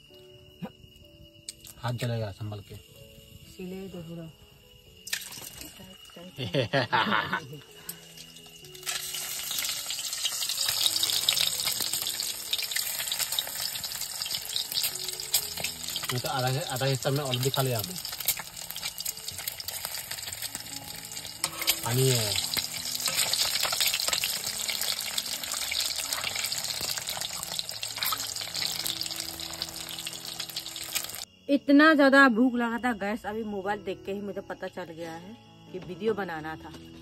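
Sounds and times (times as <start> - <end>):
food sizzling in oil: 1.6 - 31.3
water running: 8.0 - 31.2.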